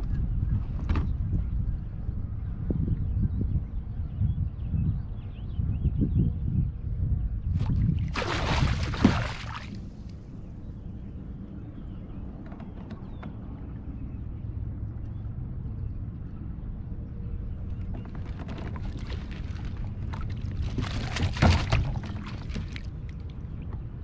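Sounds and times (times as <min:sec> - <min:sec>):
steady low rumble: 0:00.0 - 0:24.0
water splashing and dripping: 0:07.6 - 0:09.9, 0:18.8 - 0:23.3.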